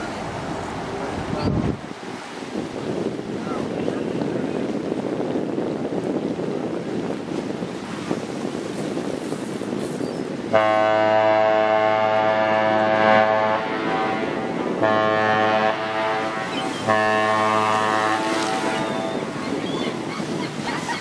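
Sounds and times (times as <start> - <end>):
wind on microphone: 0.0 - 21.0
ship's horn blasts: 10.4 - 19.6.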